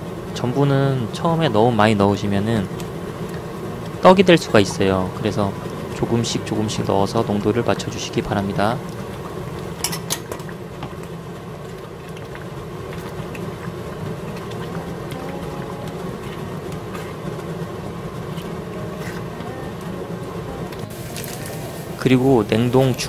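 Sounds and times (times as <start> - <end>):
sauce bubbling in a frying pan: 0.0 - 23.0
low hum: 11.1 - 23.0
spatula stirring: 13.0 - 23.0.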